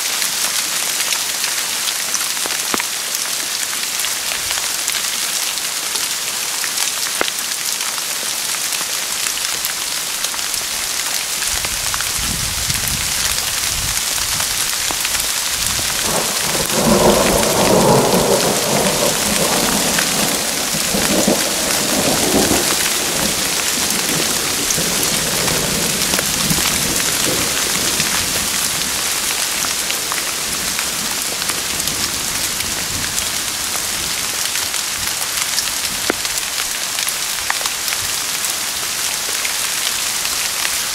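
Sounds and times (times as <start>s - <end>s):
steady rain hissing: 0.0s - 40.9s
thunder rolling: 15.5s - 29.0s.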